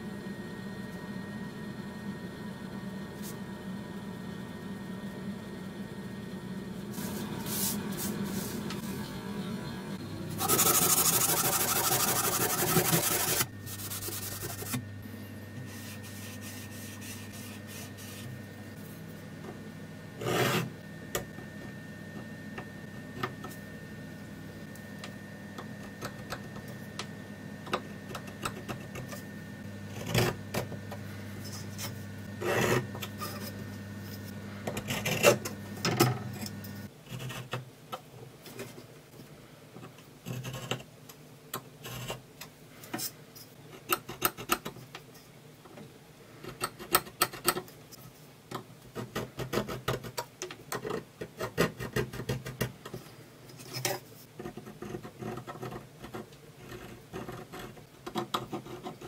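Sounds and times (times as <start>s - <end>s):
steady low hum: 0.0s - 44.1s
scriber scratching steel: 10.4s - 14.8s.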